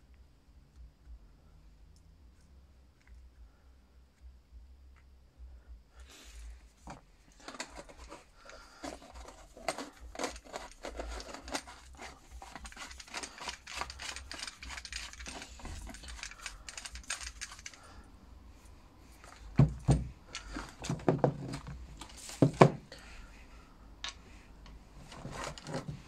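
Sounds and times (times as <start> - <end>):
small clicks and metal clinks: 7.3 - 17.9.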